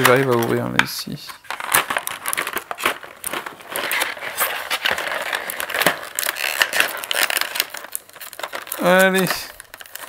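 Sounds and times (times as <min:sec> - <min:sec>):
plastic tray being pried open: 0:01.5 - 0:07.8.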